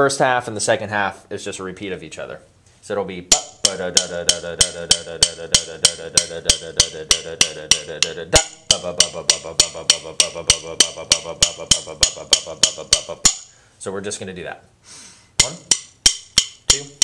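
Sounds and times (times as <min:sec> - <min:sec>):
drumsticks rolling on a practice pad: 0:03.3 - 0:13.5.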